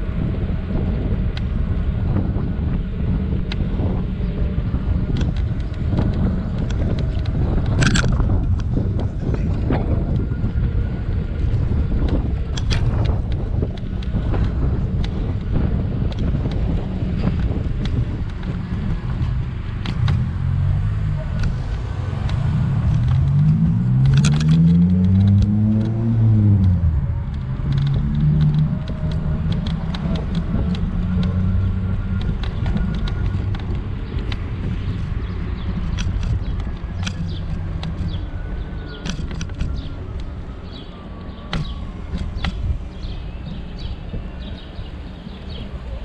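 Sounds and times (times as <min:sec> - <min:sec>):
scooter wheels rumbling on asphalt: 0:00.0 - 0:46.0
small clicks and rattles: 0:05.1 - 0:10.3, 0:21.4 - 0:43.9.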